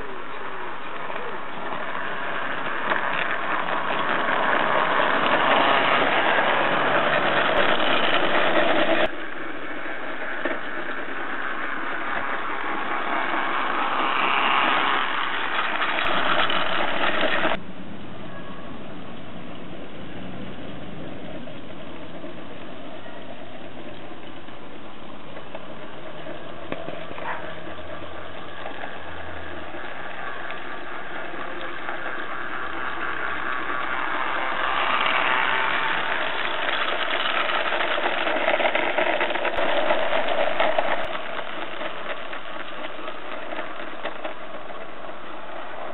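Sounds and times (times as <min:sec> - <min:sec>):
model train wheels clattering: 0:00.0 - 0:17.6, 0:20.3 - 0:45.9.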